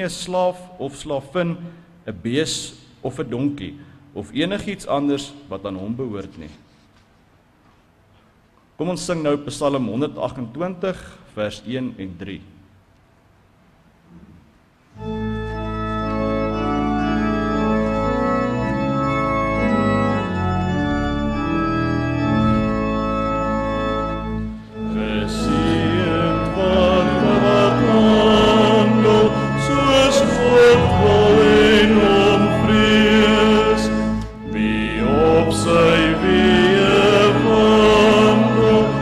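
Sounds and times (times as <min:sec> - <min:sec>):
organ chords: 0:14.9 - 0:39.0
voices singing a psalm: 0:24.8 - 0:39.0.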